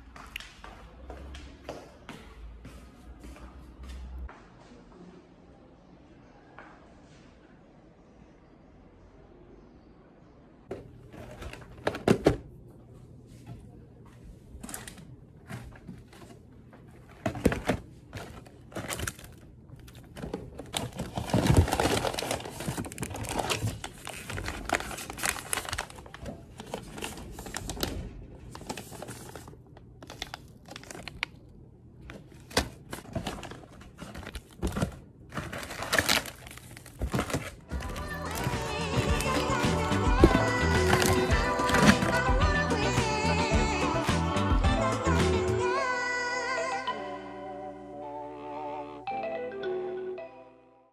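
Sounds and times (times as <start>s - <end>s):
plastic packaging crinkling: 17.1s - 42.3s
cardboard boxes torn open: 34.3s - 38.5s.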